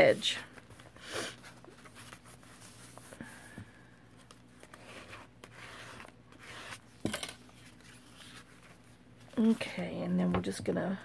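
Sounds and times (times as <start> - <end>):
paper sliding and rustling: 4.2 - 8.9.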